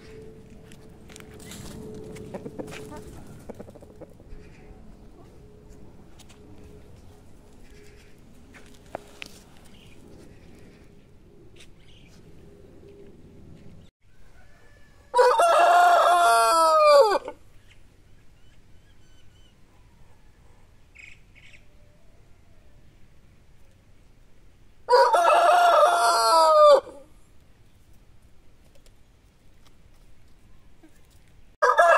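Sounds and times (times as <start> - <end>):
rooster crowing: 14.1 - 17.4, 24.9 - 27.1, 31.6 - 31.9.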